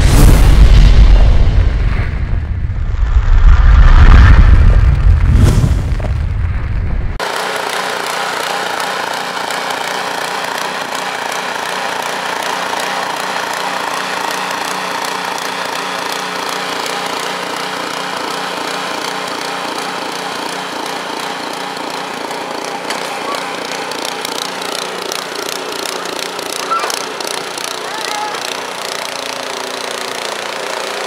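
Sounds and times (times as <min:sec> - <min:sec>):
snowblower engine running: 0:07.2 - 0:31.0.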